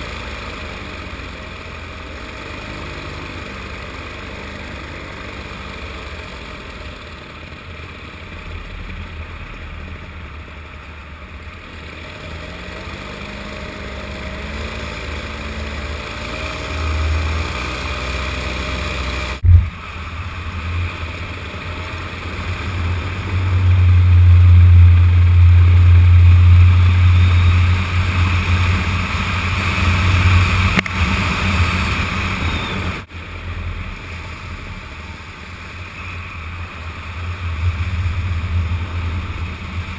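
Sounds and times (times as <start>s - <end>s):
paramotor engine running: 0.0s - 39.9s
heavy low rumble: 19.4s - 32.1s, 36.4s - 39.9s.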